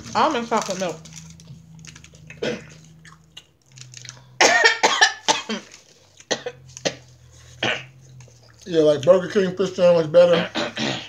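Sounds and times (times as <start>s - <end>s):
person coughing: 2.4s - 2.8s, 4.4s - 5.7s, 6.3s - 7.9s, 10.2s - 11.0s.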